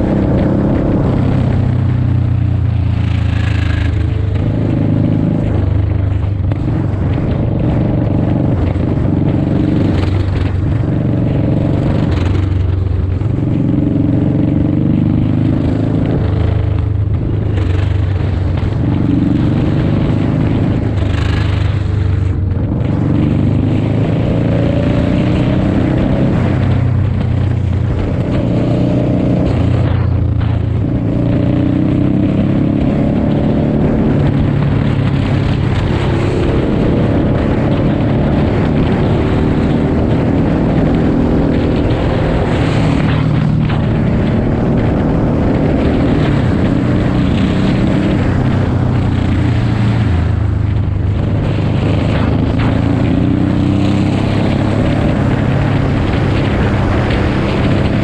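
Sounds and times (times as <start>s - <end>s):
motorcycle engine at speed: 0.0s - 58.0s
wind noise: 0.0s - 58.0s.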